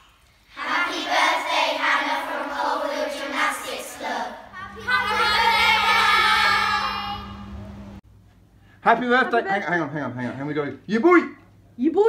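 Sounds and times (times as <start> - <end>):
steady low hum: 0.0 - 12.0
children singing: 0.5 - 7.4.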